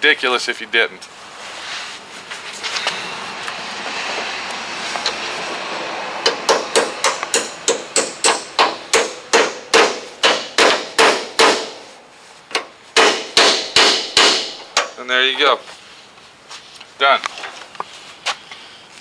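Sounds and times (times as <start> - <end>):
hammer striking metal pin: 6.2 - 11.8.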